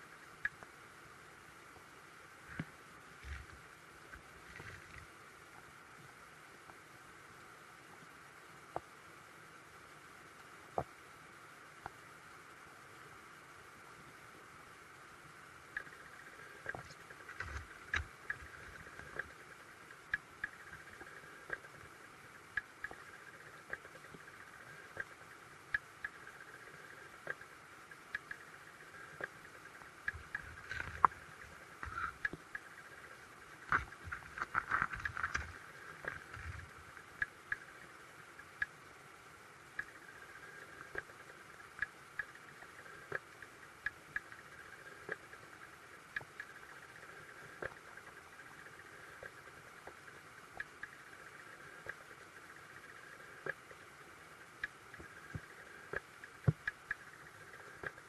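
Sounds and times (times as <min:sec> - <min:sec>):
crackling ticks: 0:00.0 - 0:00.8, 0:15.6 - 0:39.0, 0:39.6 - 0:58.0.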